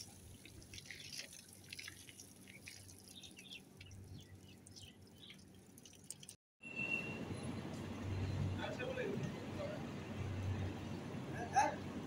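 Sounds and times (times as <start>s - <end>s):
water splashing and dripping: 0.0s - 6.4s.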